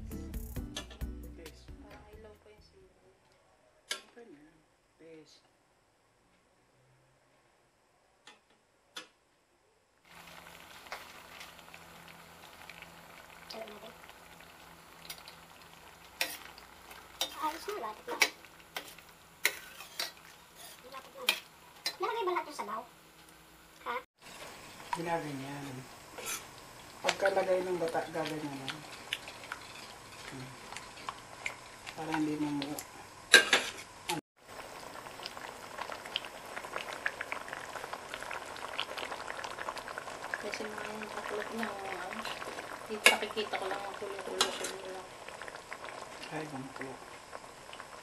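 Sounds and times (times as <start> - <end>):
stew simmering hiss: 10.1 - 48.0.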